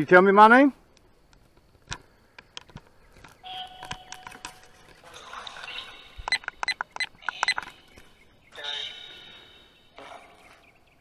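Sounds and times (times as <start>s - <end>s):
irregular radio clicks: 0.9s - 8.1s
bursts of radio static: 5.0s - 10.6s.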